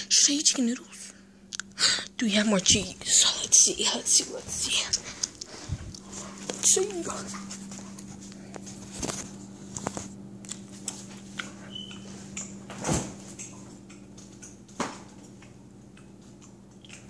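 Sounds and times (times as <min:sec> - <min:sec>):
steady low hum: 0:00.0 - 0:17.0
refrigerator door opening: 0:12.6 - 0:13.3.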